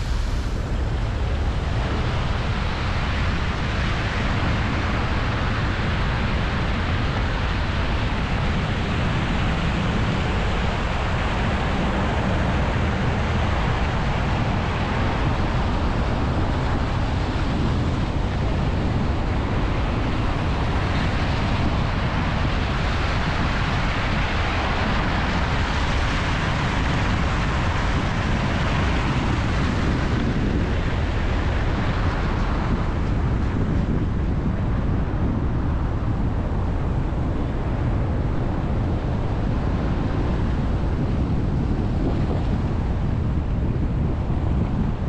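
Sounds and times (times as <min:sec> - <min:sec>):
tyre hiss on wet road: 0:00.0 - 0:01.5
wind buffeting microphone: 0:00.0 - 0:45.0.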